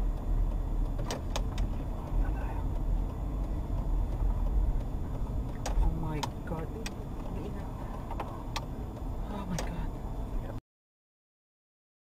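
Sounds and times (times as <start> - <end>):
car driving rumble inside cabin: 0.0 - 10.6
sharp clicks: 0.2 - 9.8.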